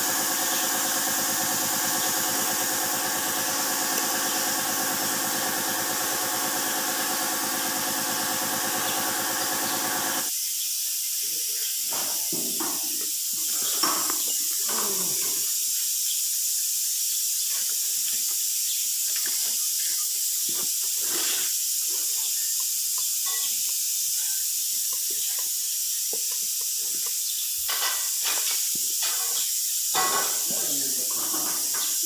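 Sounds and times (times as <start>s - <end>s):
steady high hiss: 8.8s - 32.0s.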